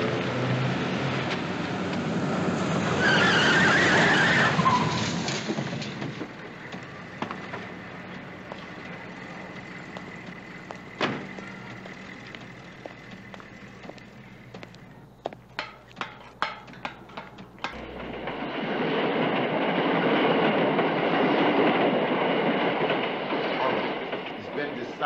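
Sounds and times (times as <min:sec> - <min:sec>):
car driving on wet pavement: 0:00.0 - 0:14.9
tyres squealing: 0:02.7 - 0:17.9.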